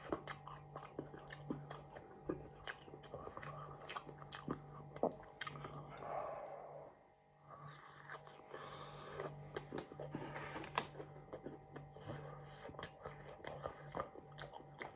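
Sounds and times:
chewing crispy fish: 0:00.0 - 0:06.5, 0:07.6 - 0:14.9
low steady hum: 0:00.0 - 0:14.9.

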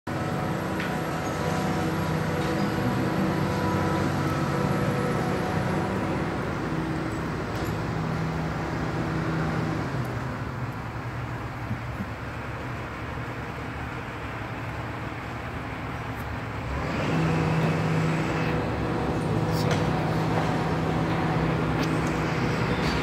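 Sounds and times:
excavator engine and hydraulics: 0:00.1 - 0:23.0.

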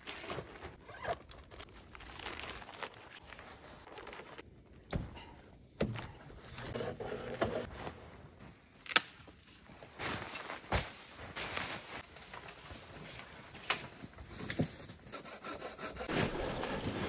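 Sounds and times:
tent fabric rustling: 0:00.0 - 0:04.4, 0:09.6 - 0:14.9.

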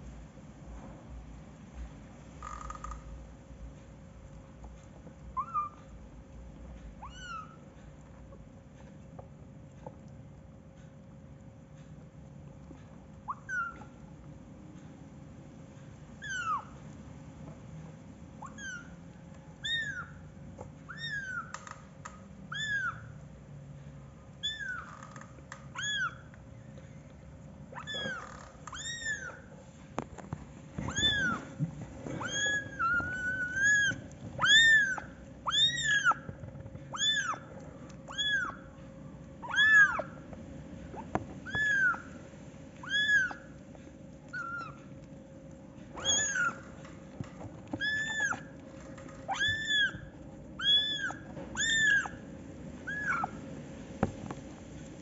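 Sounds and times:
kittens mewing: 0:30.8 - 0:38.8, 0:39.4 - 0:40.3, 0:40.9 - 0:42.2, 0:42.8 - 0:45.0, 0:45.8 - 0:53.5.

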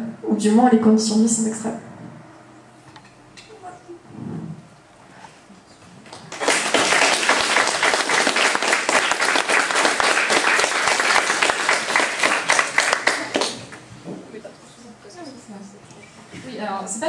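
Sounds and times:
audience applauding: 0:06.1 - 0:13.8.

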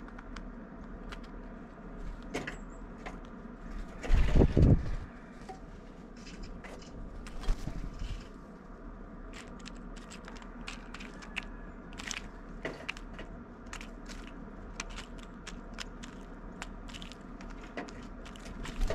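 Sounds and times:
bird pecking seeds: 0:06.1 - 0:18.9.

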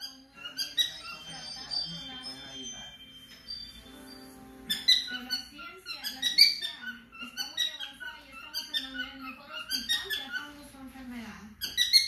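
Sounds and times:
cockatiels chirping and whistling: 0:00.0 - 0:10.7, 0:11.6 - 0:12.0.

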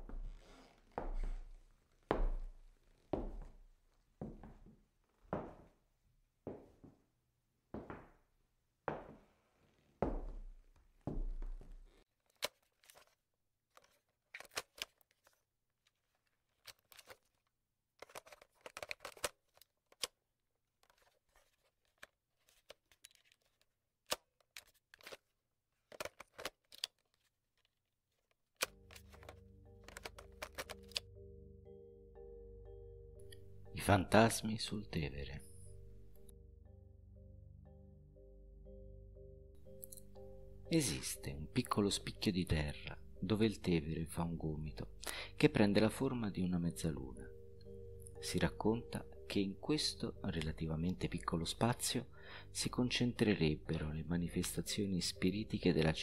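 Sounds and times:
music with held tones: 0:28.6 - 0:56.0.

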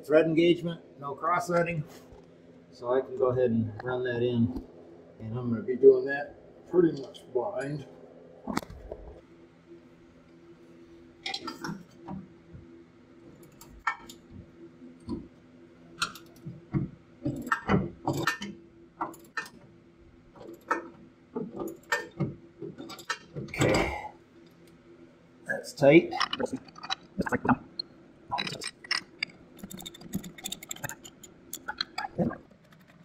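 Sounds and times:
faint steady hum: 0:00.0 - 0:33.0
wrench clicking and clinking: 0:28.4 - 0:32.1.

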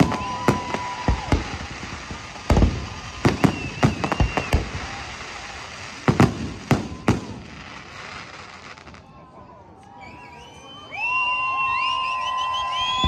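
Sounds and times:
firework whistle: 0:00.0 - 0:08.0, 0:09.8 - 0:13.0
fireworks bangs: 0:00.0 - 0:09.1.

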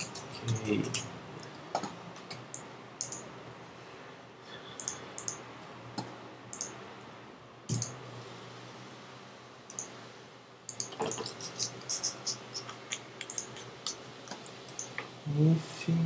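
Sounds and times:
mouse and keyboard clicks: 0:01.8 - 0:03.2, 0:04.8 - 0:05.4, 0:10.7 - 0:15.0.

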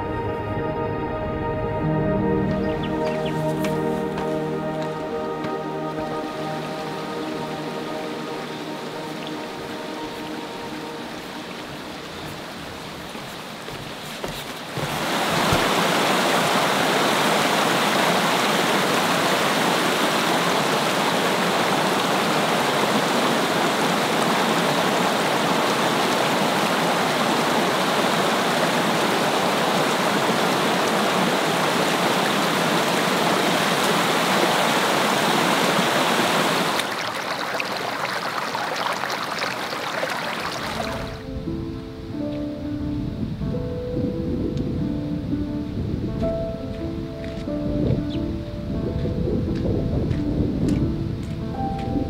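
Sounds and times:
running water rushing: 0:02.4 - 0:41.4.

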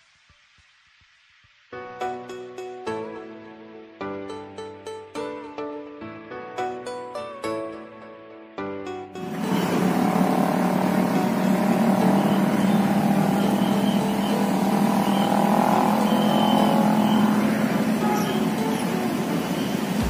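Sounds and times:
background hiss: 0:00.0 - 0:02.9
engine low hum: 0:09.2 - 0:20.0
higher steady drone: 0:09.2 - 0:20.0.

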